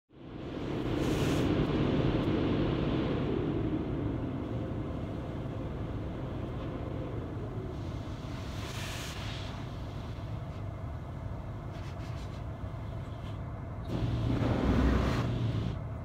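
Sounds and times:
car wash brushes and water: 13.9 - 15.7.

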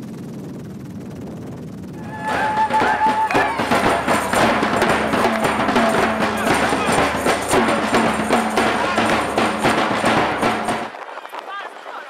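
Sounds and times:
bass drum: 2.0 - 10.9
snare drums: 2.0 - 10.9
people's voices: 2.0 - 12.0.

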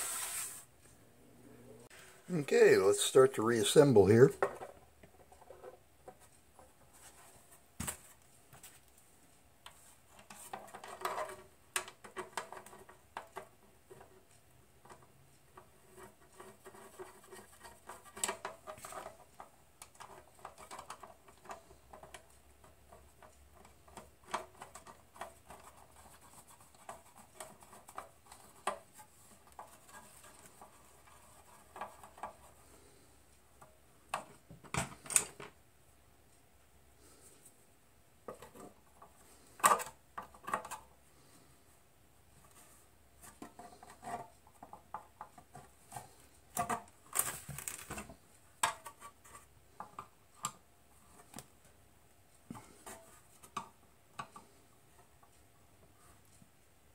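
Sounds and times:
sheet metal clicking and scraping: 10.1 - 33.0.

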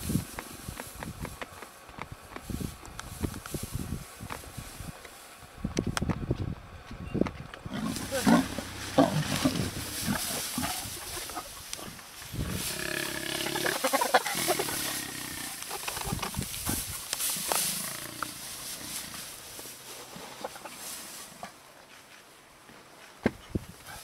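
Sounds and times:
lion and hyena growls and snarls: 7.7 - 10.9.

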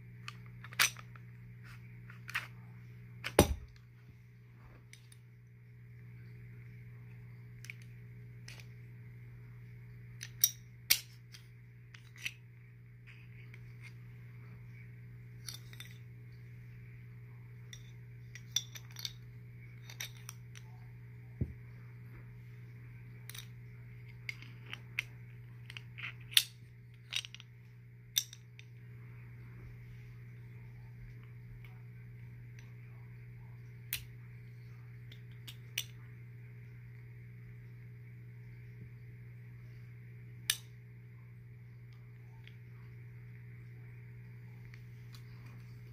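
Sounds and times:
steady low hum: 0.0 - 45.9
pistol parts clicking: 10.2 - 12.4.

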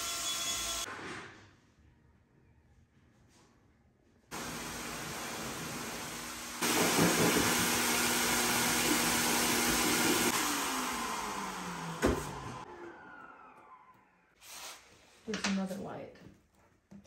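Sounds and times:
electric blower motor running: 4.3 - 14.1.

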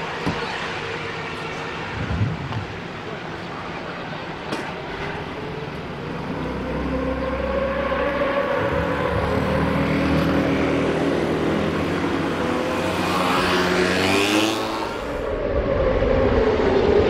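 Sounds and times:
racing motorcycle engines: 0.0 - 17.0
motorcycle engine revving: 6.2 - 15.2.

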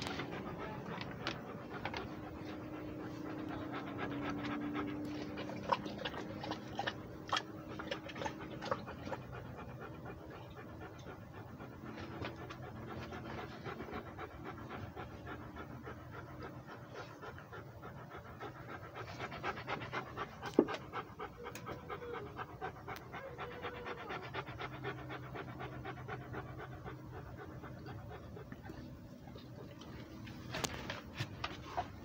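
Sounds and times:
dog panting rapidly: 0.0 - 32.0.

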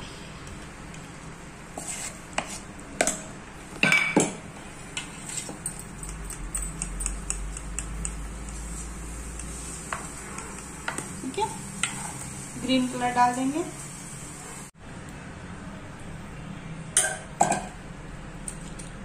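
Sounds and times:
metal spoon scraping a steel bowl: 1.8 - 2.6, 11.8 - 12.2.

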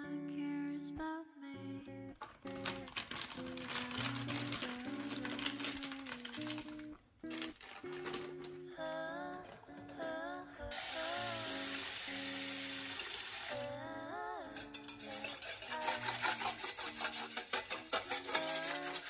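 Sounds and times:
soft background music: 0.0 - 17.1
tap water running into a pot: 10.7 - 19.0.

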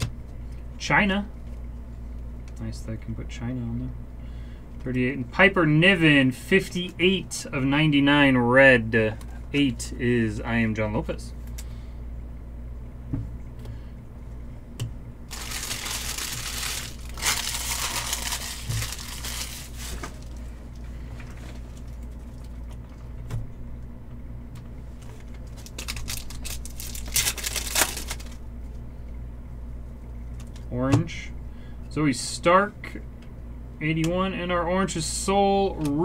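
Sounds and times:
steady low hum: 0.0 - 36.0
wrapper crinkling: 15.3 - 22.6, 25.2 - 28.4.

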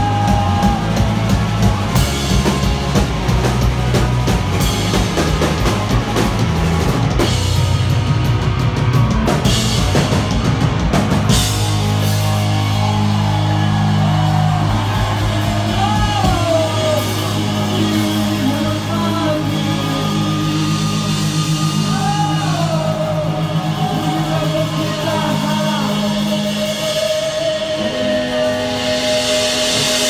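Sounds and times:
hardcore punk band playing live: 0.0 - 30.0
person singing: 13.9 - 30.0.

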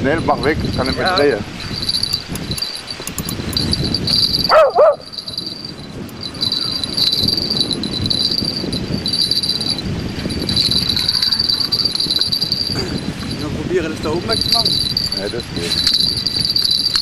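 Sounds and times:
crickets chirring: 0.0 - 17.0
dog barking: 4.5 - 5.1.

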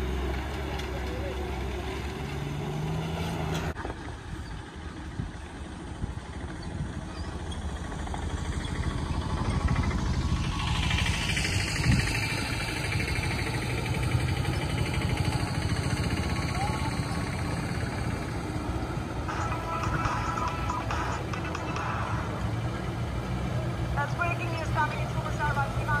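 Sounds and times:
truck diesel engine running: 0.0 - 26.0.

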